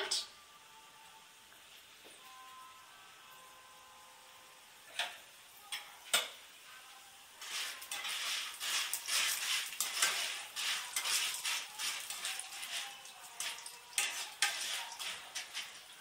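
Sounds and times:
spatula stirring popcorn kernels: 0:07.4 - 0:16.0.

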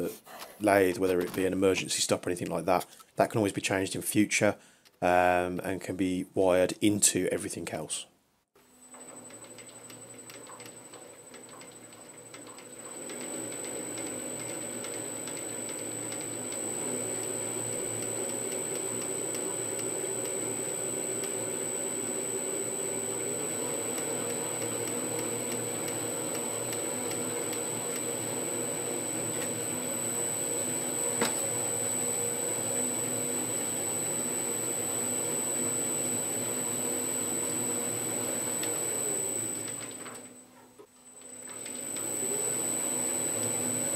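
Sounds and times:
lathe running with hum and whine: 0:08.9 - 0:40.4, 0:41.2 - 0:43.9.

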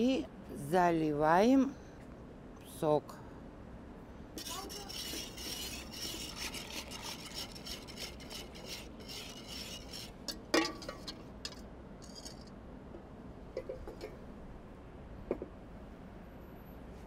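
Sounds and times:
whisk scraping metal bowl: 0:04.4 - 0:11.1.

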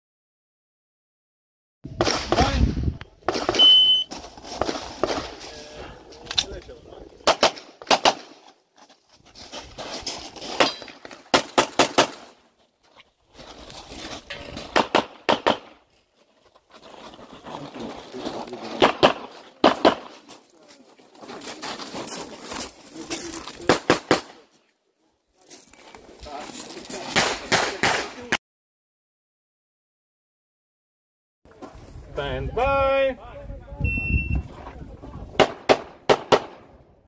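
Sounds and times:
pistol shots: 0:07.2 - 0:08.4, 0:10.6 - 0:12.3, 0:14.8 - 0:15.7, 0:35.4 - 0:36.6.

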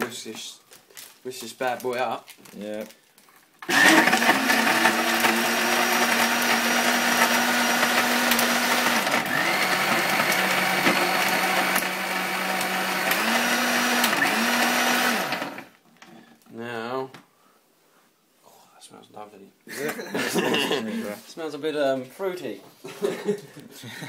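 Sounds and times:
blender running: 0:03.6 - 0:15.8.

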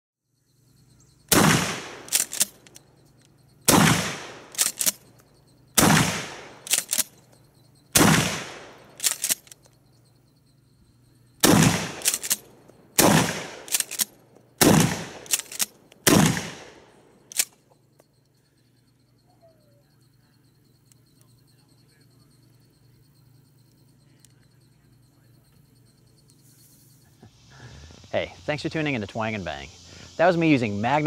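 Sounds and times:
shotgun shots: 0:01.3 - 0:02.7, 0:03.7 - 0:05.0, 0:05.8 - 0:07.1, 0:07.9 - 0:09.5, 0:11.4 - 0:17.5
shotgun pump racking: 0:02.1 - 0:02.8, 0:04.5 - 0:05.0, 0:06.6 - 0:07.1, 0:09.0 - 0:09.7, 0:12.0 - 0:12.4, 0:13.7 - 0:14.1, 0:15.2 - 0:15.7.

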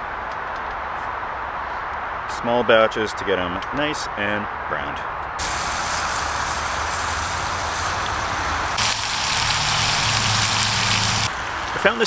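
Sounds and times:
low rumble of traffic: 0:00.0 - 0:12.0
meat sizzling in a pot: 0:05.4 - 0:12.0.

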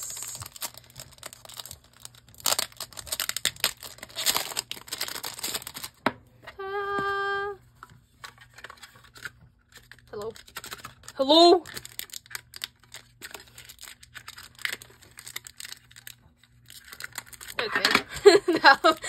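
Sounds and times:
plastic film crinkling and tearing: 0:00.0 - 0:06.0, 0:08.2 - 0:19.0.

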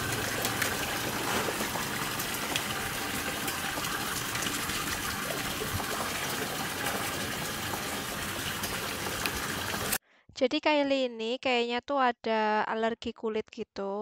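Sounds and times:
running water: 0:00.0 - 0:10.0
small splashes: 0:00.0 - 0:10.0.

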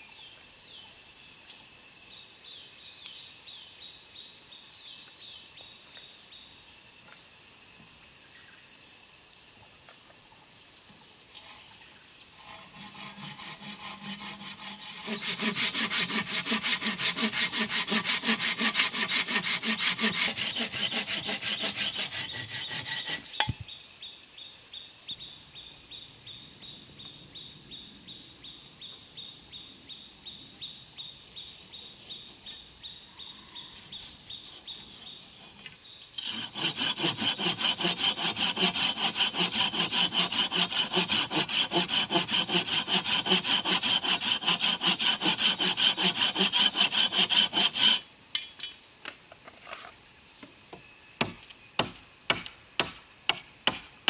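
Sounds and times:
hand saw cutting wood: 0:12.3 - 0:23.5, 0:36.2 - 0:48.1.

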